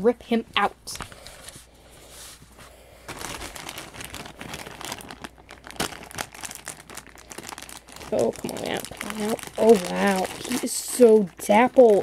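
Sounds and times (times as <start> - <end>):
plastic bag crinkling: 3.0 - 12.0.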